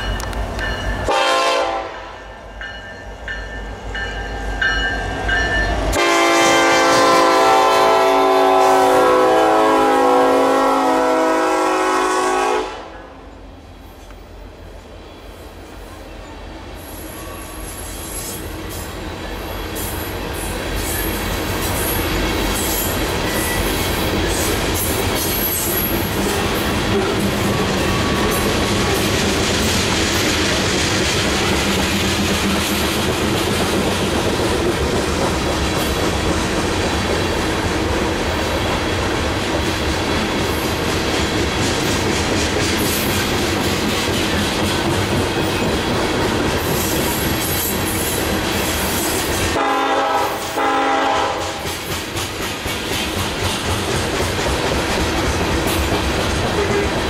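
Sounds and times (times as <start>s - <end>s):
locomotive air horn blasts: 1.1s - 2.2s, 6.0s - 13.2s, 49.6s - 51.6s
faint high wheel squeal: 16.8s - 18.5s, 20.8s - 23.8s
train wheels clattering over rail joints: 19.7s - 49.6s, 50.4s - 57.0s.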